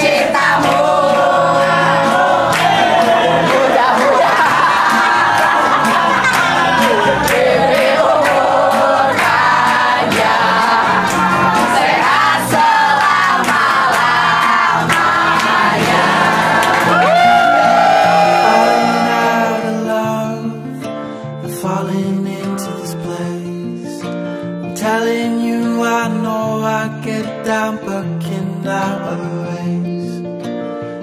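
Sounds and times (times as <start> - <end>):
people clapping in time: 0.0 - 19.5
group singing: 0.0 - 20.4
recorded song: 0.0 - 31.0.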